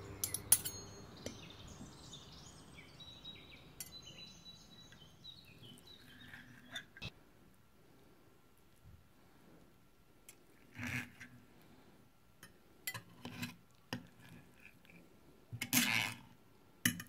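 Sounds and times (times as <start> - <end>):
cutlery clinking on plate: 0.2 - 1.4.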